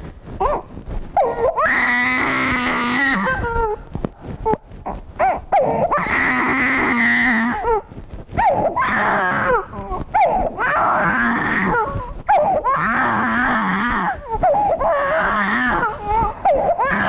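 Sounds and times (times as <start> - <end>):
infant crying: 1.2 - 4.6, 5.2 - 17.0.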